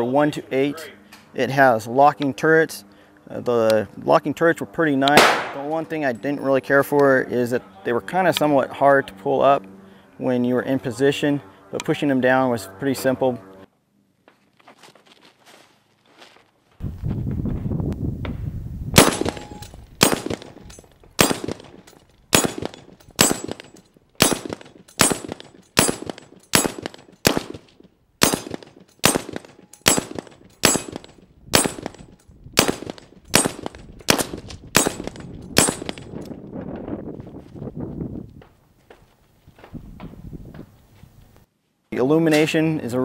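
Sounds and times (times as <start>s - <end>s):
rifle shots: 5.2s - 5.7s, 19.0s - 36.1s.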